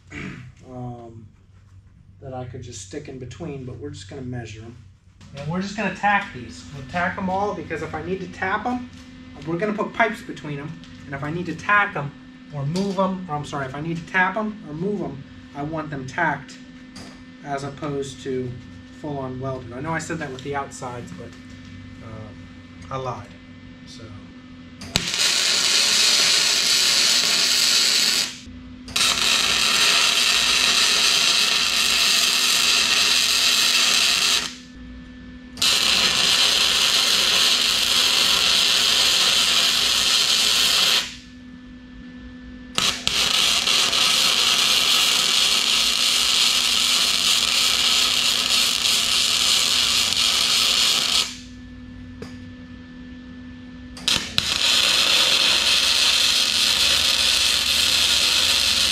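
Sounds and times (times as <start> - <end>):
low hum: 0.0 - 58.9
arc welding crackling hiss: 24.9 - 34.8, 35.6 - 41.3, 42.8 - 51.5, 54.0 - 58.9.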